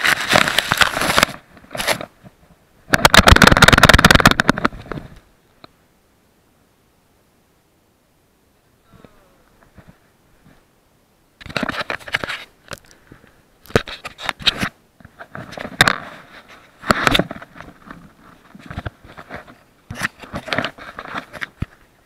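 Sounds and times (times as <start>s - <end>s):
hands rubbing on camera: 13.7s - 21.8s.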